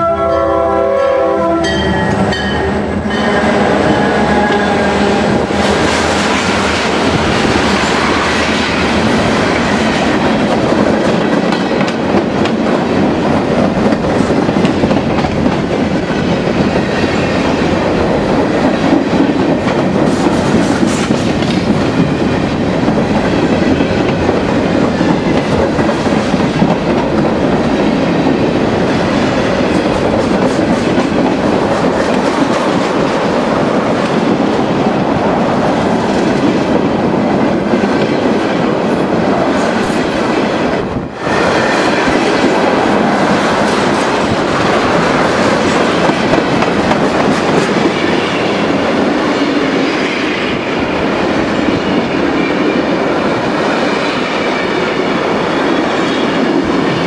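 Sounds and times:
locomotive horn: 0:00.0 - 0:06.6
clickety-clack over rail joints: 0:05.7 - 0:50.2.

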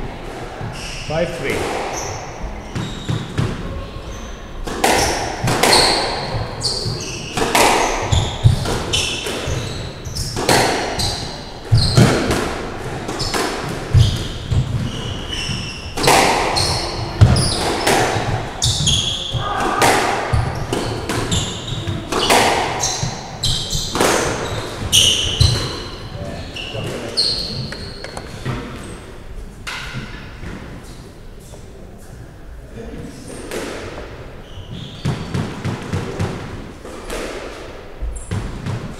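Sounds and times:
shoes squeaking on wooden floor: 0:00.6 - 0:03.4, 0:05.0 - 0:12.3, 0:13.1 - 0:19.6, 0:20.3 - 0:29.1, 0:34.4 - 0:35.4
squash ball cracking off walls: 0:04.7 - 0:09.6, 0:16.0 - 0:23.2.

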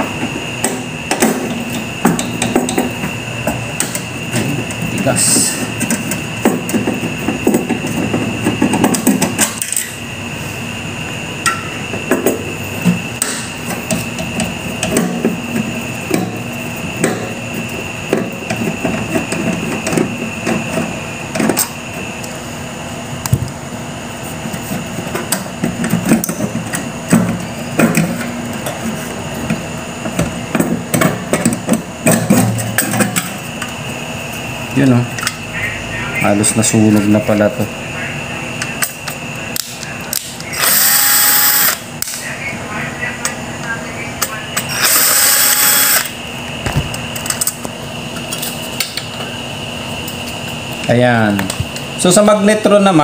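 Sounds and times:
steady high-pitched tone: 0:34.2 - 0:49.9.

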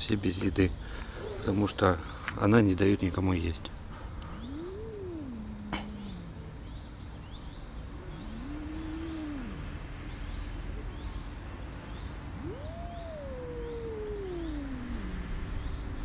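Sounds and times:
cat yowling: 0:04.3 - 0:06.7, 0:08.0 - 0:09.9, 0:12.4 - 0:16.0.

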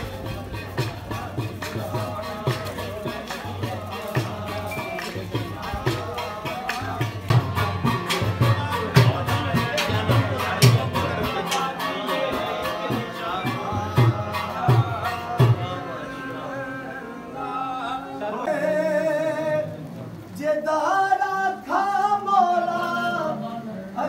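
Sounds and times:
heavy drum beats: 0:00.0 - 0:15.8
man singing devotional song: 0:00.0 - 0:24.0.

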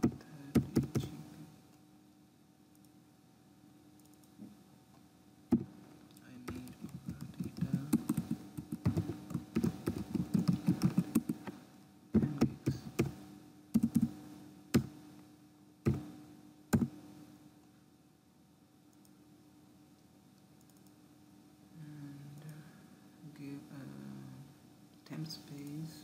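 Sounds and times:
computer keyboard typing: 0:00.0 - 0:01.1, 0:06.4 - 0:11.4, 0:13.8 - 0:14.1
faint steady hum: 0:00.0 - 0:26.0.

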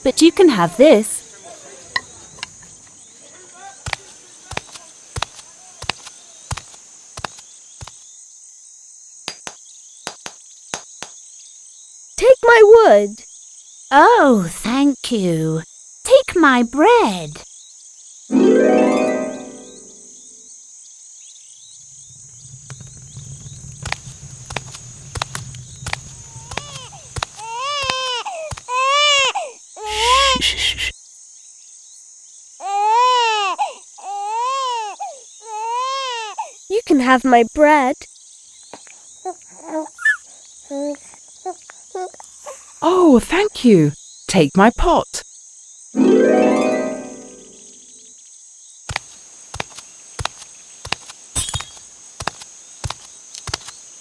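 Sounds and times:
crickets chirring: 0:00.0 - 0:54.0
cartoon footsteps: 0:23.8 - 0:28.7, 0:48.9 - 0:53.7
baby crying: 0:26.6 - 0:30.5, 0:32.6 - 0:36.5.

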